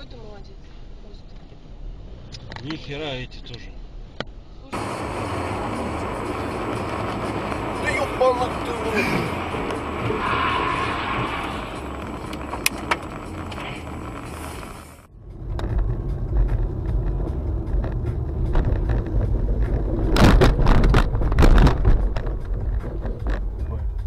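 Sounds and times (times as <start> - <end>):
car road and engine rumble: 0.0 - 24.0
knocks and scraping: 4.8 - 24.0.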